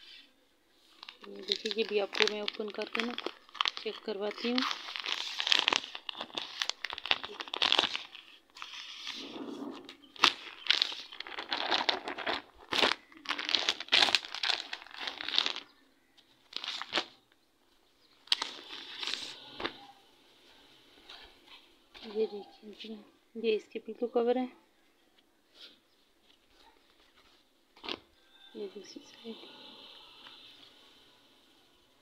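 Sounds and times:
plastic packaging crinkling: 0.8 - 15.8, 16.4 - 17.2, 18.2 - 19.8, 26.9 - 28.1.

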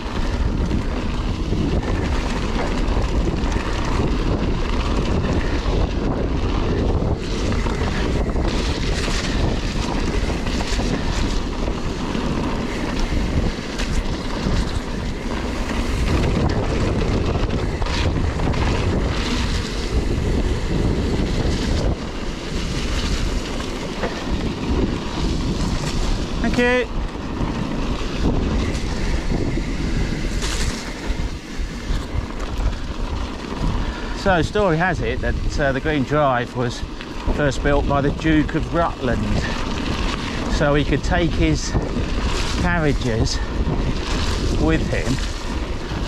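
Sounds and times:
bike tyres rolling on wet gravel: 0.0 - 46.0
wind on microphone: 0.0 - 46.0
bike knocking over bumps: 6.6 - 33.8.

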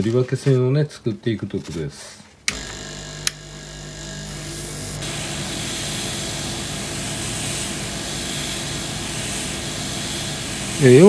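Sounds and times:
airbrush hissing: 4.3 - 11.0.

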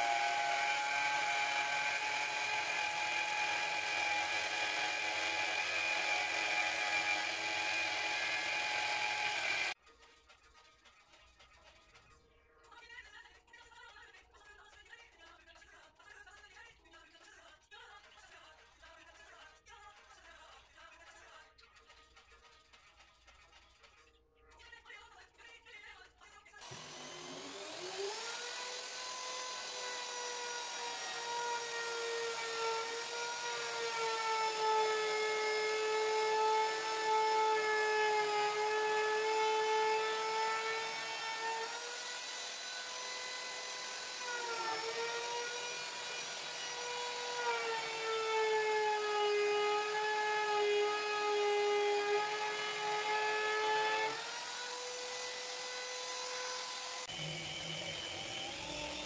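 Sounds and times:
electric router cutting wood: 0.0 - 9.8, 26.6 - 59.0.

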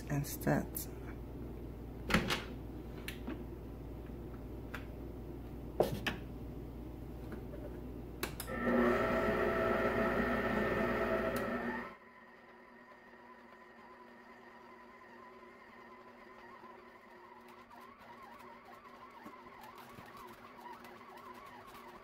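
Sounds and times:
stand mixer motor whine: 8.4 - 22.0.

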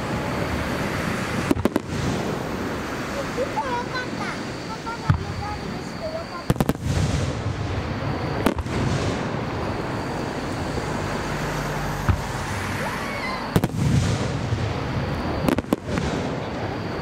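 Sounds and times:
low rumbling echoes: 4.4 - 16.6.

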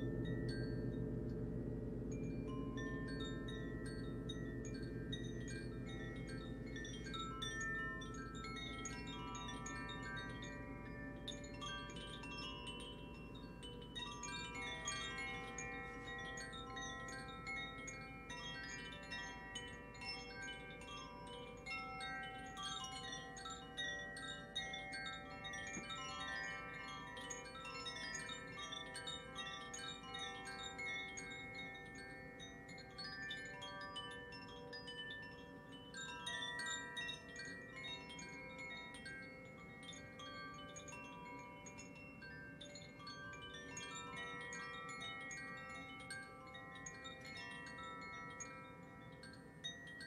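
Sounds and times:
wind chimes tinkling: 0.0 - 50.0.

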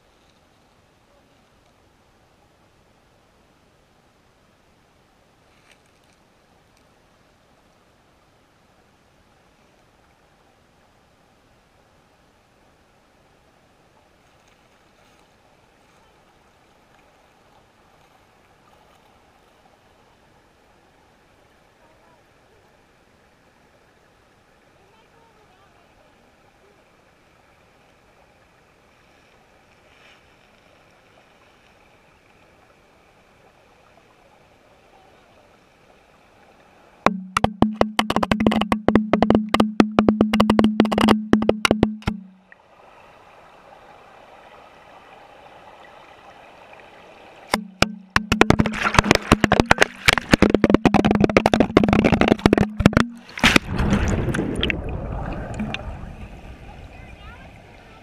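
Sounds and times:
muffled underwater water hush: 13.9 - 58.0
housing knocking and rattling: 37.1 - 42.2, 47.8 - 53.2
turbulent water rushing: 42.6 - 58.0.

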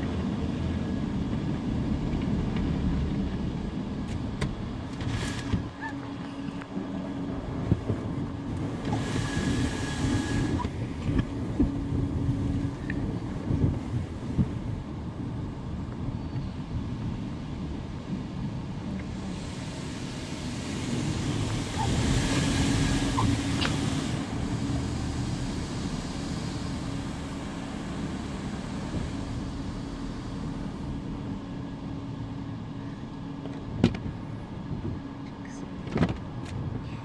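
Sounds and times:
car wash machinery rumble: 0.0 - 37.0
water spray hissing on windshield: 8.7 - 10.7, 19.2 - 30.8.

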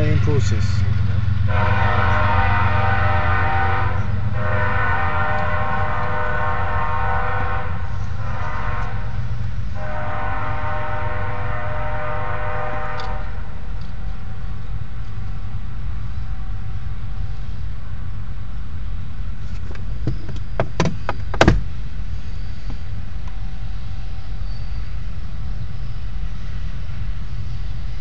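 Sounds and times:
train low rumble: 0.0 - 28.0
train air horn blasts: 1.5 - 13.6.

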